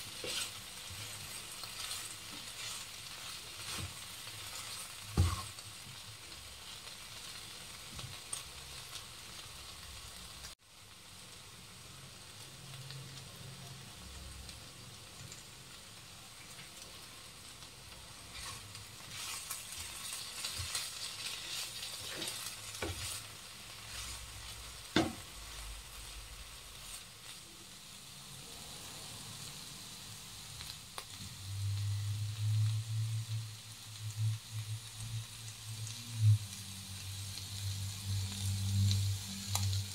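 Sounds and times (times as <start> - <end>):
vegetables sizzling in a wok: 0.0 - 39.9
spatula knocking on pan: 5.2 - 5.4, 25.0 - 25.2.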